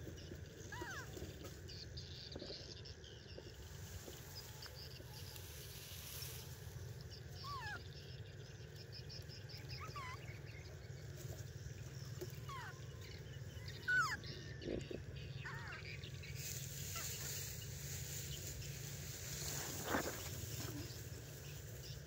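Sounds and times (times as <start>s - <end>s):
steady low rumble: 1.7s - 22.0s
animal high gliding chirps: 3.6s - 9.0s, 9.6s - 21.8s.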